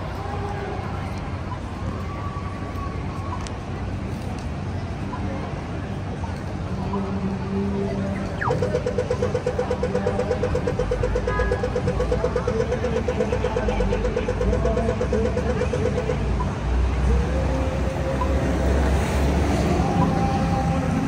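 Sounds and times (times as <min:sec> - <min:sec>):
street traffic rumbling: 0:00.0 - 0:21.0
steady tone: 0:08.0 - 0:18.7
rapid electronic ticking: 0:08.1 - 0:18.6.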